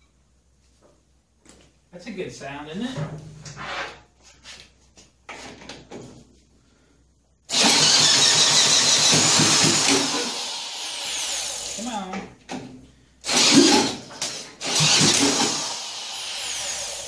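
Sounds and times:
engine turning over: 7.5s - 11.6s, 13.3s - 16.0s
electric drill whining: 7.5s - 11.9s, 13.2s - 17.0s.

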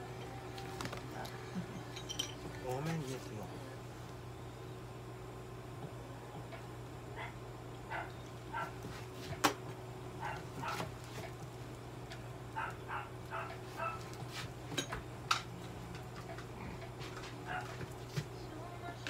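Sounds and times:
low electrical hum: 0.0s - 19.0s
dog barking and yipping: 7.2s - 8.9s, 10.2s - 10.9s, 12.6s - 14.1s, 17.5s - 17.9s.

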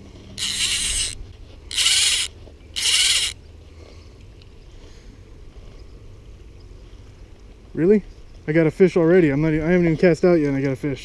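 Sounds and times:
fly reel drag buzzing: 0.4s - 3.4s.

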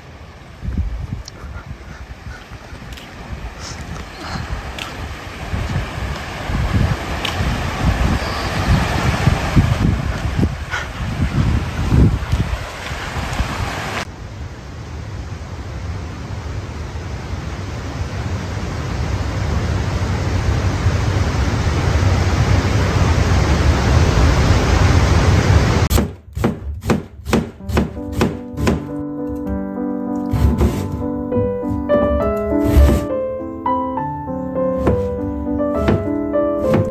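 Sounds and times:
wind buffeting microphone: 0.0s - 14.1s
knife slicing onion on board: 25.9s - 28.8s, 30.3s - 31.0s
background music: 27.4s - 36.9s.

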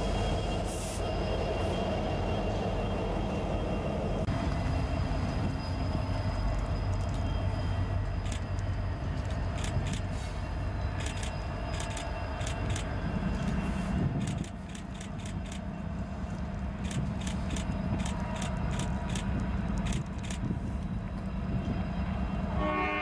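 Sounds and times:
diesel locomotive engines rumbling: 0.0s - 23.0s
wheels clicking and rattling on rails: 0.0s - 23.0s.

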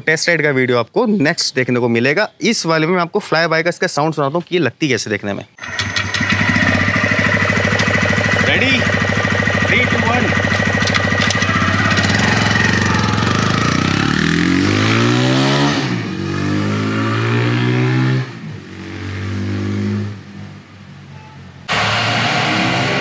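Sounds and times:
motorcycle engine passing by: 5.6s - 20.1s.

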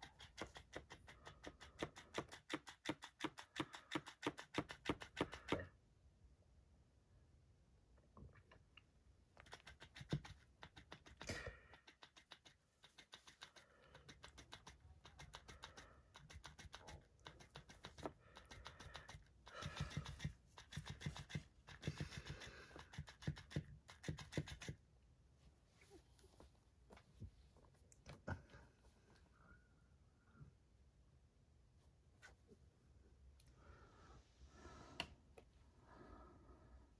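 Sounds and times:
cat scratching plush toy: 0.0s - 5.7s, 9.3s - 24.9s.

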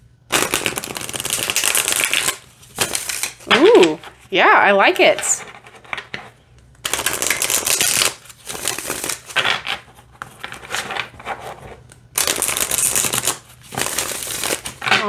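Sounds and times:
cards riffling: 0.3s - 4.1s, 6.8s - 9.6s, 12.1s - 15.0s.

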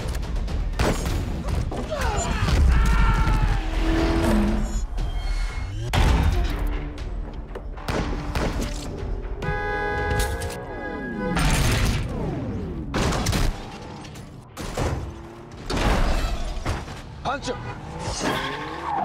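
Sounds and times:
action film score music: 0.0s - 18.6s
loud car crash: 14.6s - 17.1s.

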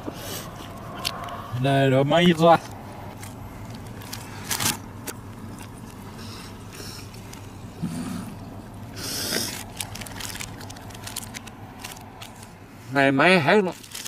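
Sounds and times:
paper wrapper rustling: 3.2s - 6.0s, 9.3s - 12.5s, 13.7s - 14.0s
low grunt: 7.8s - 8.5s.

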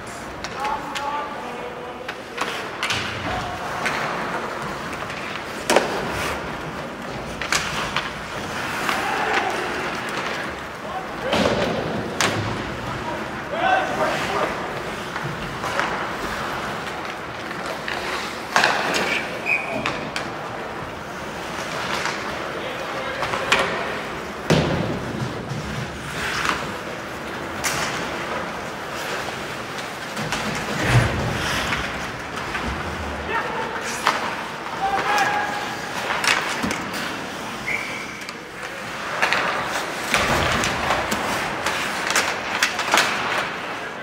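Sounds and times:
hockey sticks and puck clacking: 0.0s - 44.0s
skates scraping ice: 0.0s - 44.0s
players calling out: 7.4s - 15.3s, 32.6s - 43.8s.

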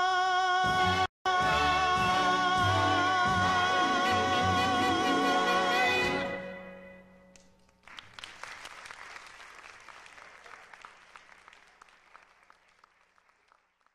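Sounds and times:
audience applauding: 7.6s - 13.9s.

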